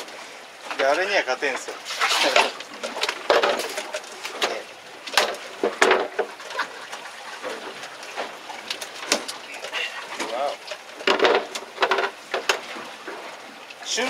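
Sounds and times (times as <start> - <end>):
knocks and thuds on boat deck: 3.3 - 6.4, 11.0 - 13.2.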